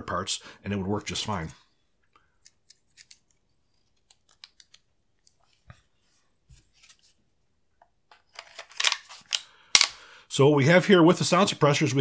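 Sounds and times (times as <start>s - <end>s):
pistol parts clicking and tapping: 4.0s - 4.9s, 8.1s - 10.0s.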